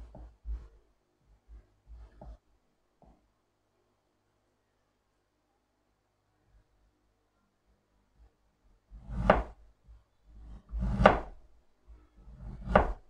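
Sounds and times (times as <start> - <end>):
knife cutting on wooden board: 9.0 - 9.6, 10.4 - 11.4, 12.3 - 13.0.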